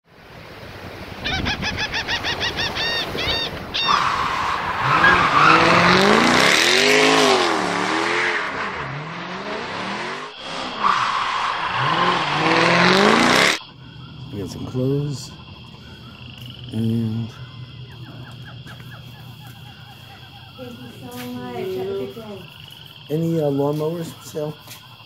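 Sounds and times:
tires screeching: 0:00.8 - 0:25.0
car engine revving: 0:03.8 - 0:23.2.

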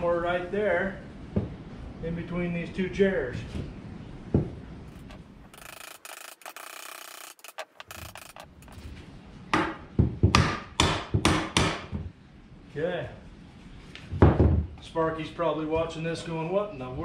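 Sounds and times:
electrical box scraping on wood: 0:04.9 - 0:08.8
hammer blows driving nails: 0:09.5 - 0:12.0.

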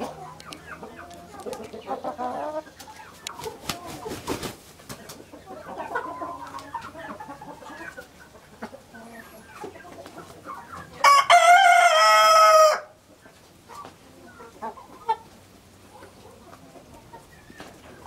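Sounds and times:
hens clucking: 0:00.0 - 0:18.0
rooster crowing: 0:11.0 - 0:13.0.

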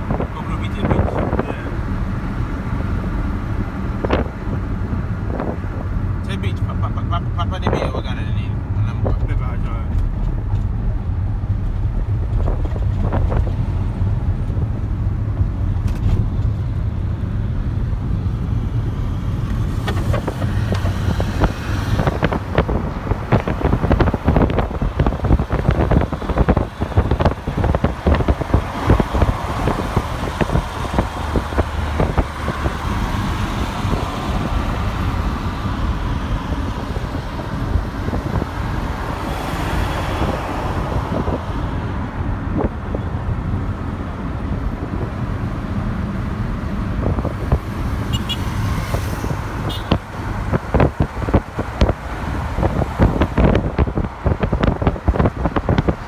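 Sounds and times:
car engine and tyres rumbling: 0:00.0 - 0:56.0
rapid irregular knocks and crackles: 0:19.5 - 0:21.1.

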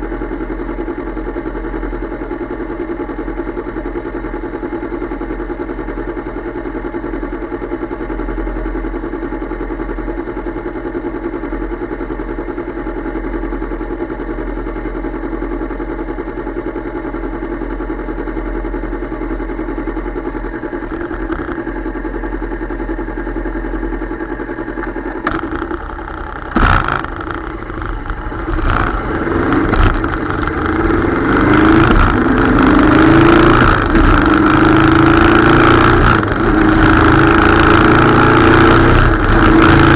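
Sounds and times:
motorcycle engine idling: 0:00.0 - 0:39.9
motorcycle accelerating: 0:18.0 - 0:39.9.

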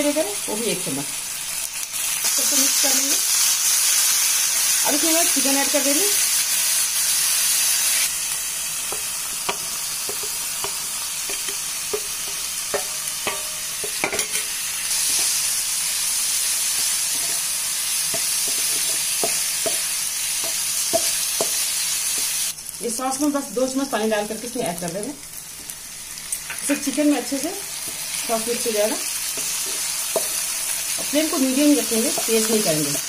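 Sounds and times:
sauce sizzling in frying pan: 0:00.0 - 0:33.0
spatula tapping pan: 0:08.9 - 0:15.4, 0:18.1 - 0:22.3, 0:29.3 - 0:32.5.

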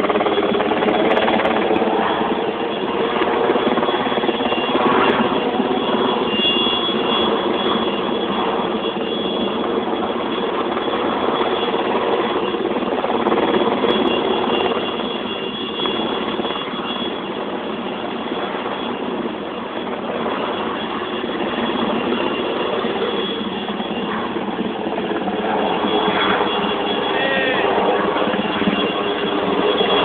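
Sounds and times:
helicopter rotor and engine: 0:00.0 - 0:30.0.

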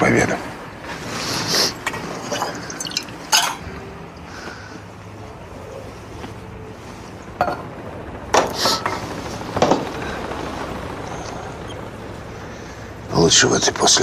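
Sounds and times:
glasses and tableware clinking: 0:01.9 - 0:03.7.

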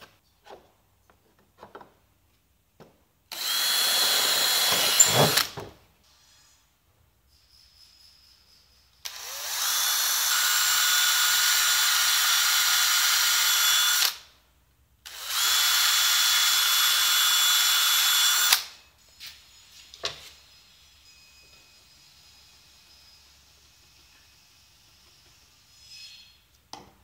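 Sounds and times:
cordless drill running: 0:03.3 - 0:05.6, 0:09.0 - 0:14.3, 0:15.0 - 0:18.8.

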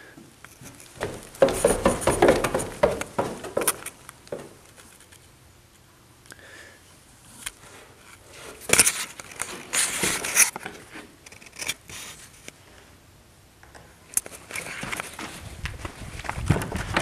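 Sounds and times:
crunching and rustling: 0:14.3 - 0:17.0.

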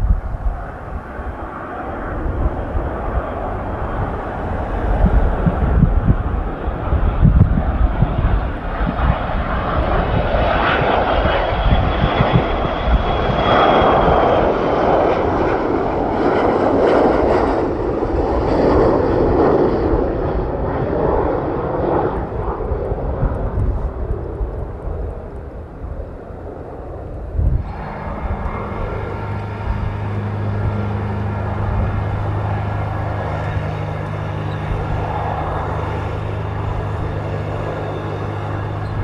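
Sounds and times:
high jet whine dropping in pitch: 0:00.0 - 0:39.0
jet engine roar: 0:00.0 - 0:39.0.

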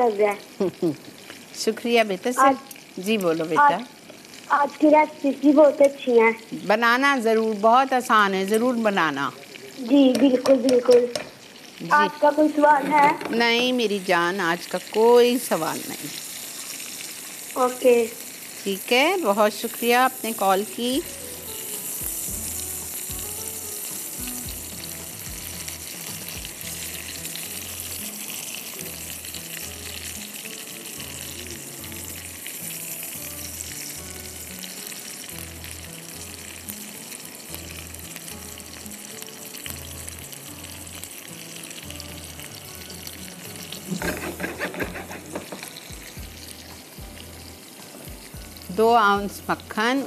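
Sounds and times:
onion sizzling in a pan: 0:00.0 - 0:50.0
slow low-beat background music: 0:20.4 - 0:50.0
sharp clicks and scrapes: 0:44.0 - 0:45.6.

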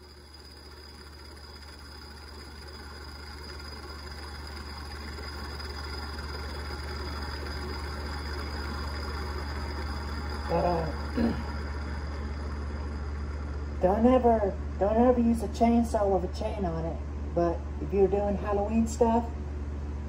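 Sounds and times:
pedestal fan humming and rushing: 0:00.0 - 0:20.0.

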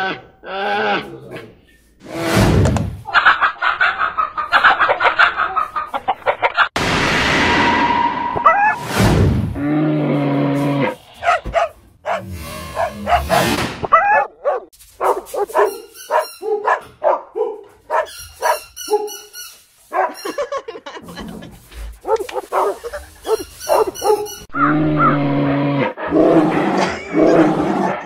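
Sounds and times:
brief whoosh: 0:06.8 - 0:09.6
low hum: 0:06.8 - 0:09.8
dog barking and yipping: 0:11.2 - 0:20.4, 0:22.0 - 0:25.1.

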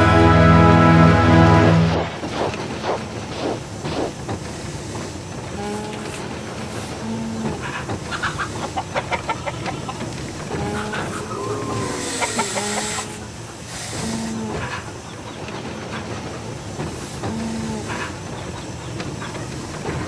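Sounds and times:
train running: 0:00.0 - 0:20.0
farm animal calls: 0:07.4 - 0:13.3
burst of hiss: 0:11.1 - 0:14.8.

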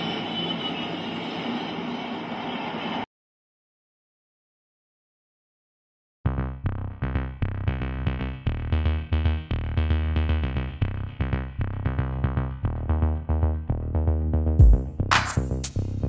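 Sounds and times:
electronic song with heavy bass: 0:06.3 - 0:16.0.

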